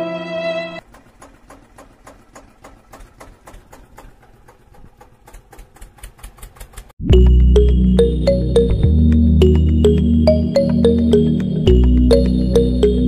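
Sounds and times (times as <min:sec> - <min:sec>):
violin music: 0:00.0 - 0:00.8
toy tractor wheels clicking: 0:00.8 - 0:07.0.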